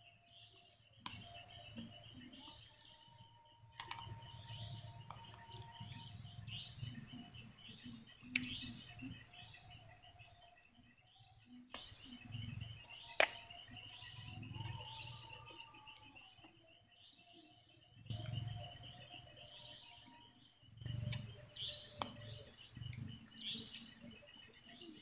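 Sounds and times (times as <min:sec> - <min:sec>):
chorus of repeating chirps: 0:00.0 - 0:25.0.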